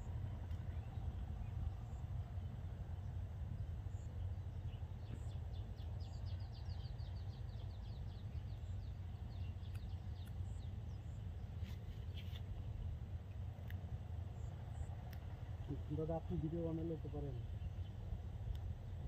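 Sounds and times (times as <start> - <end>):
steady low rumble: 0.0 - 19.0
small bird chirping: 3.9 - 12.6.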